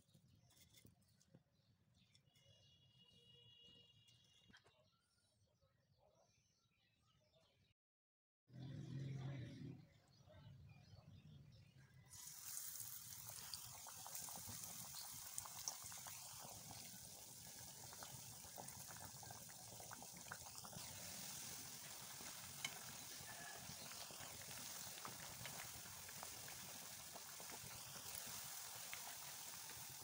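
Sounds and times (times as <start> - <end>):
food deep-frying in oil: 12.0 - 30.0.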